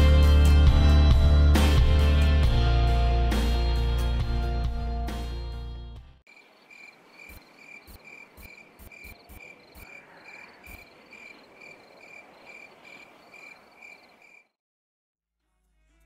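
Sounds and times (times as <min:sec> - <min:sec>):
crickets chirping: 0:06.3 - 0:14.6.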